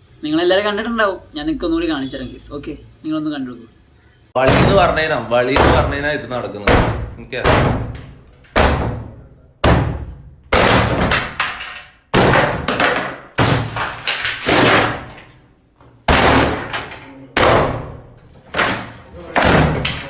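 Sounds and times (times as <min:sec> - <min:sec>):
door being kicked: 0:04.4 - 0:06.0, 0:06.6 - 0:15.2, 0:16.0 - 0:20.0
wooden panel splintering: 0:09.6 - 0:15.3.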